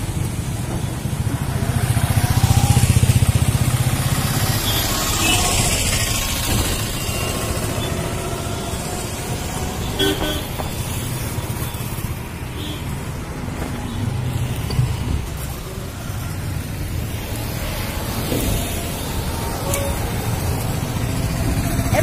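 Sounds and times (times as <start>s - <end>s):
traffic rumble: 0.0s - 22.0s
vehicle horn toot: 9.9s - 10.5s.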